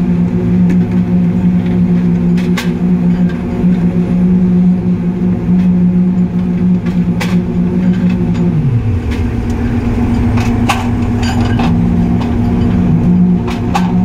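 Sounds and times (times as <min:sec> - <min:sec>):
paving machine humming: 0:00.0 - 0:14.0
metallic knocks and clanks: 0:07.2 - 0:14.0.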